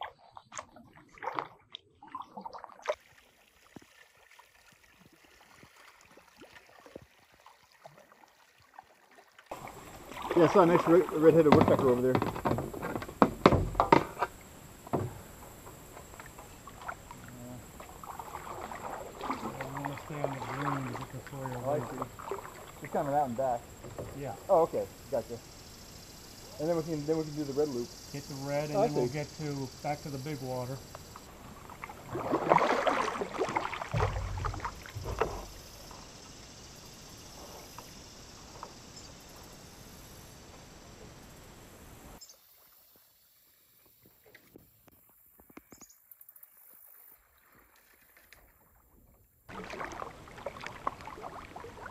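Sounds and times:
water drips: 0.0 - 39.5, 49.5 - 51.9
paddle splashes: 0.0 - 42.7, 47.2 - 51.9
low rumbles: 33.9 - 36.2.

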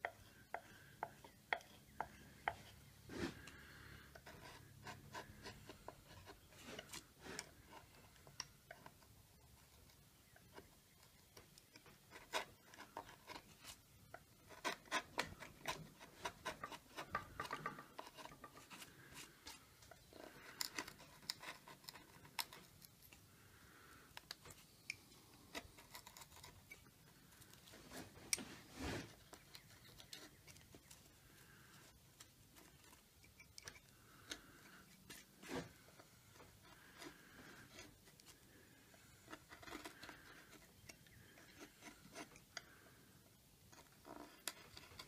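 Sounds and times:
gouge carving wood: 0.0 - 45.0.

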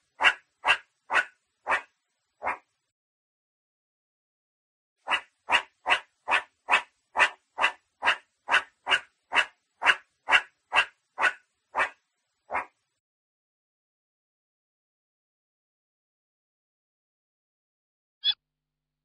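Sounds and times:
meerkat barking calls: 0.1 - 2.7, 5.0 - 12.8.

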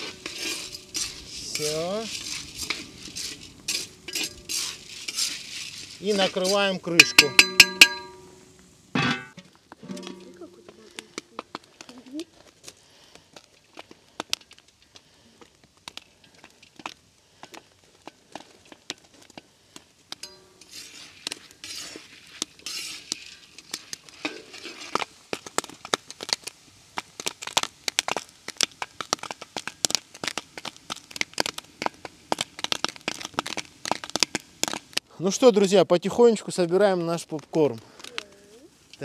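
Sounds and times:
hiss in pot: 0.0 - 9.0, 19.6 - 30.4
popcorn kernels popping: 6.9 - 8.4, 13.1 - 35.0.

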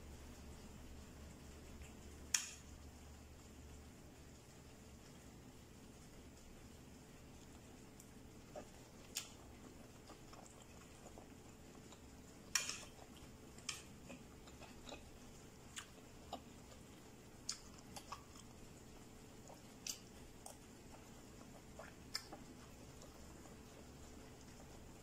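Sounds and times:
cutlery clicking on a plate: 12.5 - 12.9.

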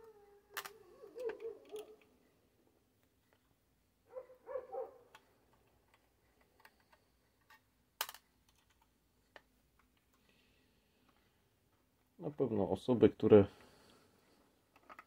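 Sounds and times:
hands handling metal parts: 0.0 - 2.2, 5.1 - 10.2, 14.6 - 15.0.

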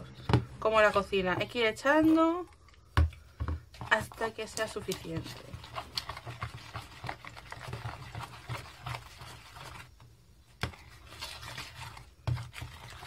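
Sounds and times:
slime scraping in plastic bowl: 3.8 - 10.0, 10.6 - 13.0.

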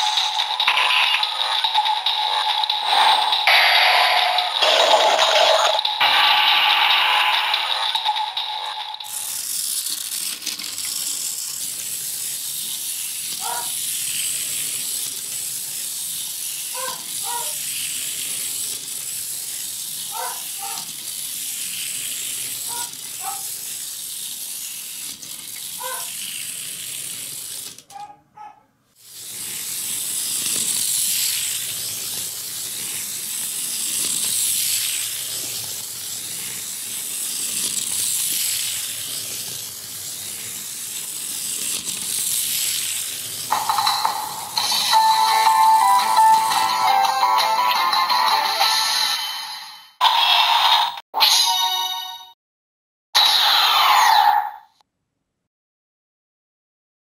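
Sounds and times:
steam-like hissing: 0.0 - 5.3, 5.9 - 9.5.

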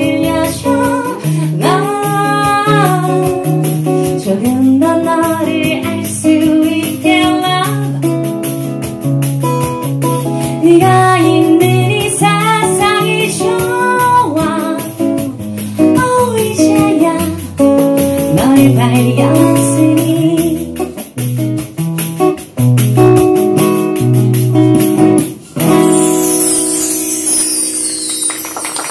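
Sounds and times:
woman singing: 0.0 - 8.2, 10.4 - 21.0.

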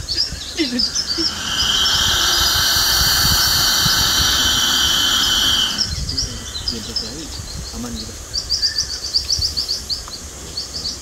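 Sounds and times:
lizard hissing: 0.7 - 6.9.

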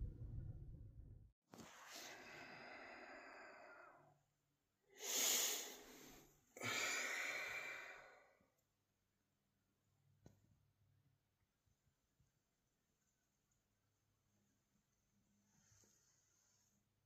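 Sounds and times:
person breathing heavily: 1.8 - 4.1, 4.9 - 8.4.

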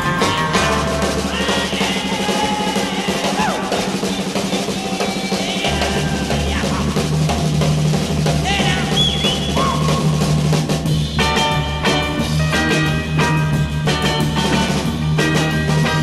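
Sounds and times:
drum kit playing: 0.0 - 16.0
deep bass line: 5.6 - 16.0.

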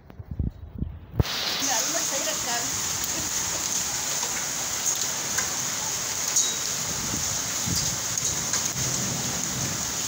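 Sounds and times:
heavy rain hissing: 1.2 - 10.0.

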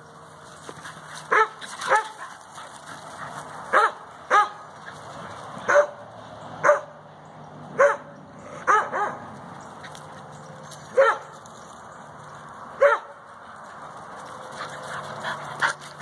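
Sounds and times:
dog barking: 1.3 - 2.2, 3.7 - 4.6, 5.7 - 6.0, 6.6 - 7.0, 7.8 - 9.3, 11.0 - 11.3, 12.8 - 13.2.

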